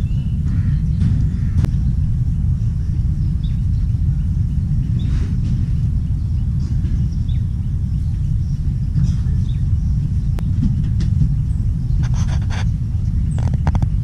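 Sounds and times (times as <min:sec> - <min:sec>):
bird chirps: 0:00.0 - 0:10.6
loud low rumble: 0:00.0 - 0:14.0.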